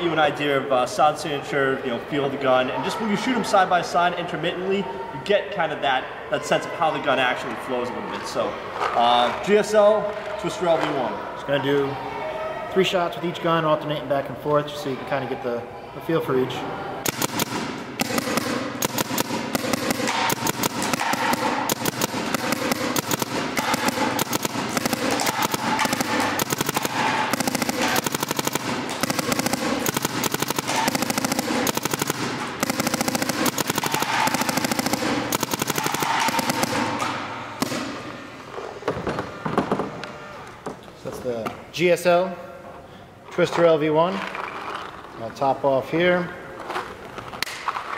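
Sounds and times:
paintball guns rapid popping: 17.0 - 38.1.

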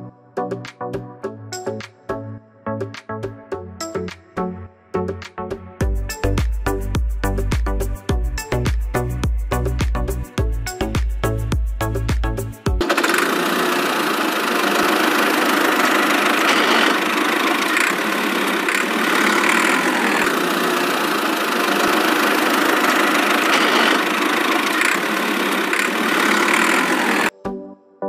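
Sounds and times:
toy tractor engine running: 12.8 - 27.3.

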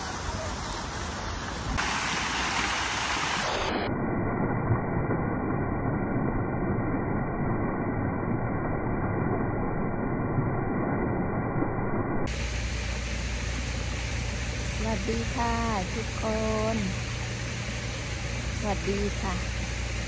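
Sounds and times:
fountain water splashing into basin: 0.0 - 3.9.

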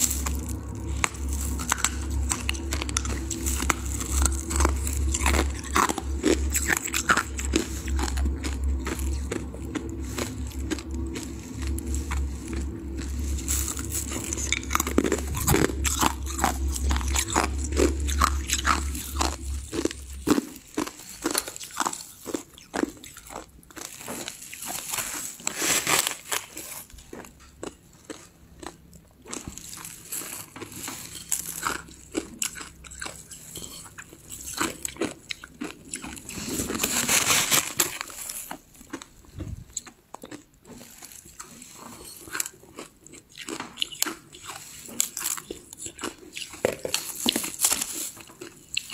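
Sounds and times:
low hum: 0.0 - 23.7, 39.2 - 39.8
ice crunching being chewed: 0.0 - 48.9.

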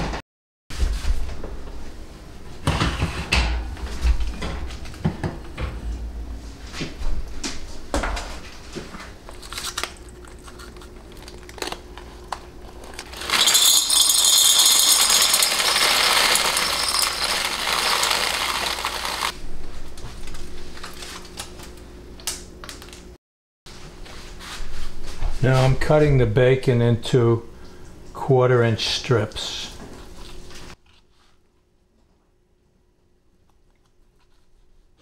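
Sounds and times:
dry beans rattling out: 12.7 - 19.4.

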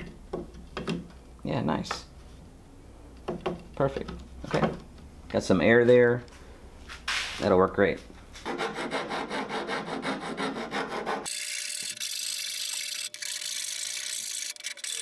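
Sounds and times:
hand file scraping metal edge: 8.4 - 15.0.

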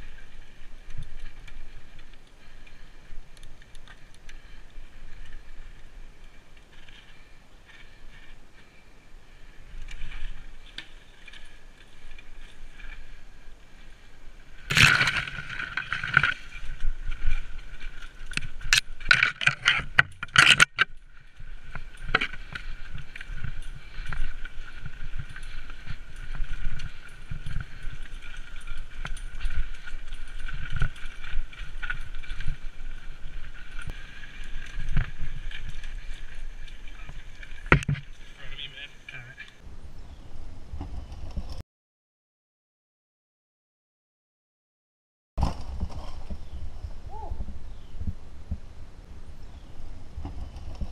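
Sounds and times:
mountain bike rattling: 0.0 - 39.6
tyres rumbling on trail: 0.0 - 41.5.

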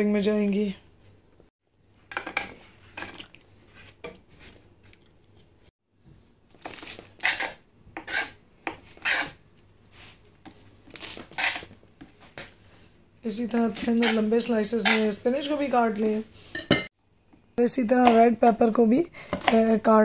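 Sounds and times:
knife cutting on a cutting board: 6.7 - 9.4, 11.0 - 11.7, 13.9 - 15.2.

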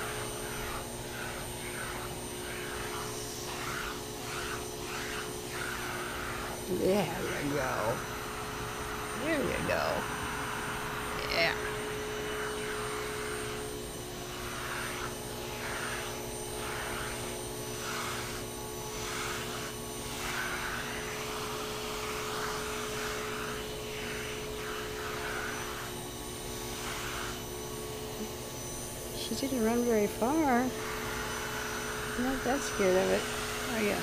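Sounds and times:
vacuum cleaner running: 0.0 - 34.0.

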